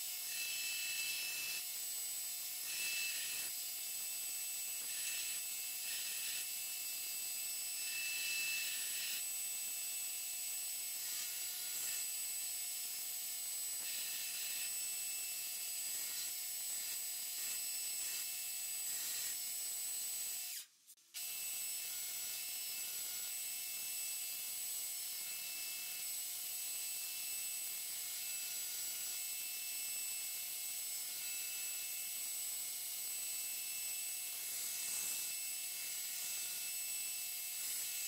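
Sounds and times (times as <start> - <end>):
belt grinder grinding steel: 0.0 - 9.3, 10.8 - 23.4.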